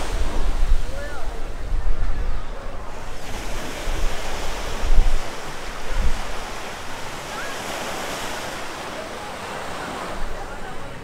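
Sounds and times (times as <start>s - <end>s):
wind buffeting microphone: 0.0s - 8.8s
surf washing onto beach: 0.0s - 11.0s.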